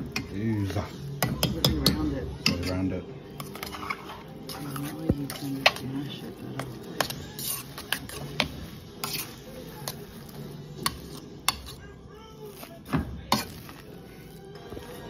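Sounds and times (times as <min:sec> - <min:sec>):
potato masher mashing: 0:03.4 - 0:11.8, 0:12.5 - 0:15.0.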